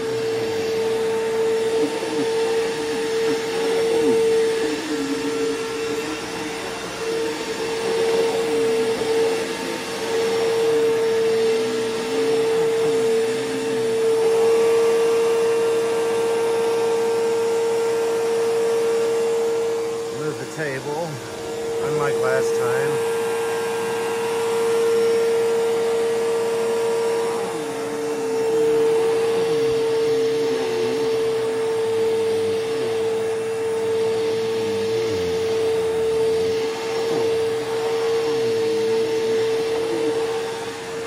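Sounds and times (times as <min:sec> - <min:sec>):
upright vacuum cleaner whining: 0:00.0 - 0:41.0.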